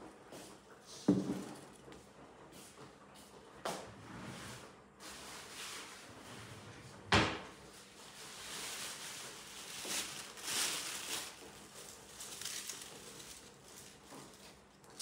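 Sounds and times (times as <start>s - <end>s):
rustling and handling noises: 7.6s - 15.0s.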